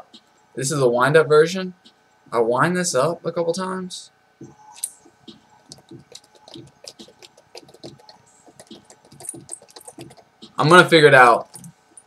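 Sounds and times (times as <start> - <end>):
faint mechanism clicks: 4.8 - 10.6.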